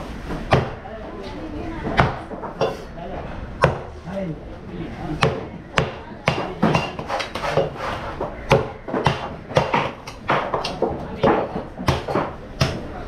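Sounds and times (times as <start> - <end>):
cleaver chopping on wooden block: 8.4 - 12.8.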